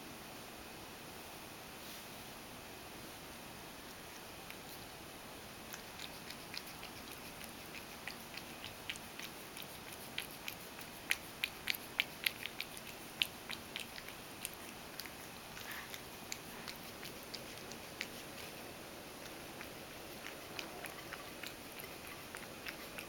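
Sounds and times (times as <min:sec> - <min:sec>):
cat lapping milk from bowl: 0:05.7 - 0:23.0.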